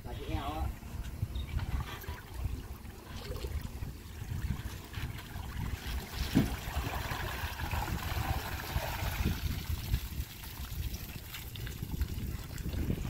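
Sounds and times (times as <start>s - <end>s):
water streaming off boat hull: 0.7s - 13.0s.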